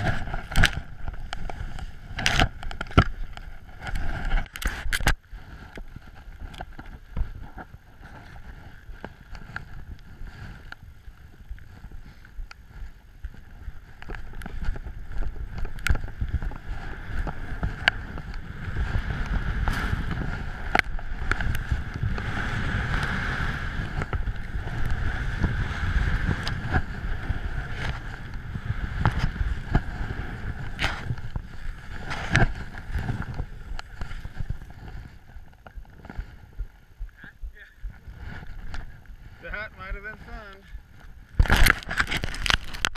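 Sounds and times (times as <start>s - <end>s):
skis rushing through snow: 0.0s - 36.8s
wind rumbling on microphone: 0.0s - 42.9s.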